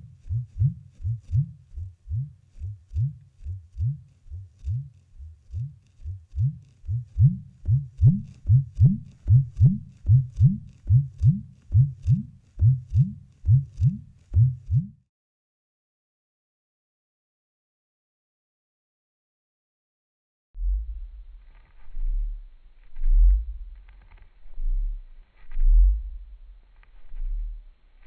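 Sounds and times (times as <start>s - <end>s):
low fast thumping pulse: 0.0s - 15.0s, 20.6s - 27.8s.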